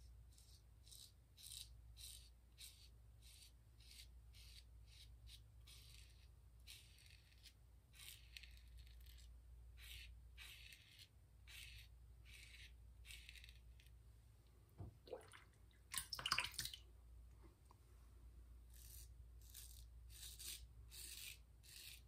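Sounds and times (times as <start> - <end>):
razor scraping stubble: 18.7 - 22.0.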